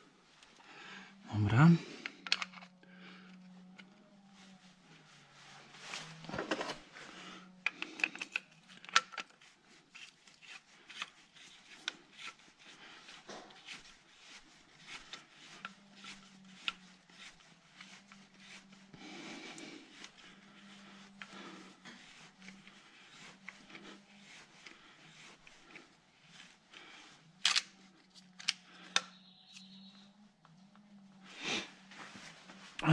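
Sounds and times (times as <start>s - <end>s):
faint low hum: 0.0s - 9.9s
metal clicks and scrapes of tools: 2.1s - 4.0s, 7.6s - 12.4s, 27.4s - 29.7s.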